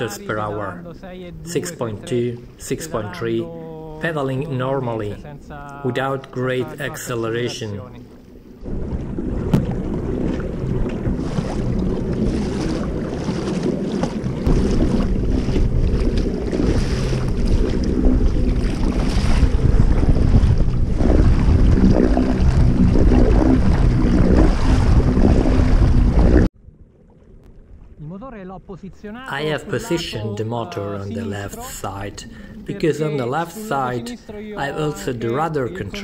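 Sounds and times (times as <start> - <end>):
water splashing along kayak hull: 6.4 - 36.0
wind on microphone: 8.6 - 26.5.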